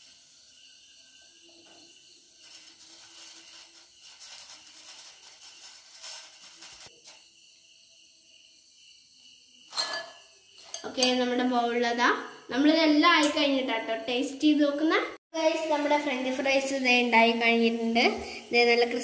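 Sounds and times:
frying oil sizzling: 0.0 - 6.9, 15.4 - 19.0.

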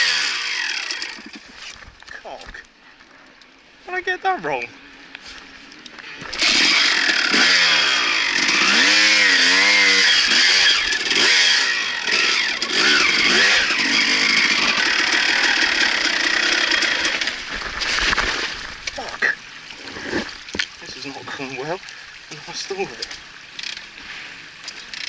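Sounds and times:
dirt bike engine revving: 0.0 - 1.5, 6.1 - 18.7.

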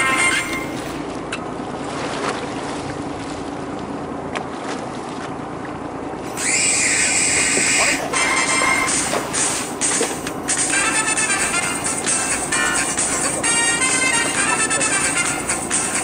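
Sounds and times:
faint low hum: 0.0 - 16.0
sea and wind noise: 0.0 - 16.0
loud hissing: 6.3 - 10.7.

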